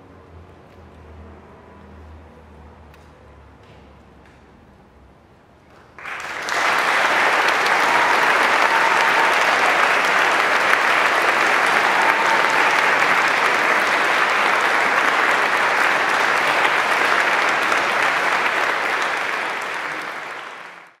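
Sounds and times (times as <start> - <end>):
audience applauding: 6.0 - 21.0.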